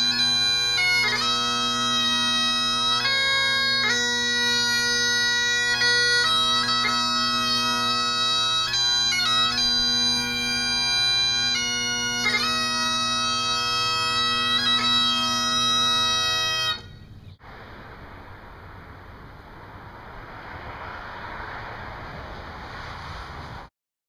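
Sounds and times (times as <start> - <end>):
bagpipes playing slow melody: 0.0 - 17.0
faint hiss: 16.9 - 23.7.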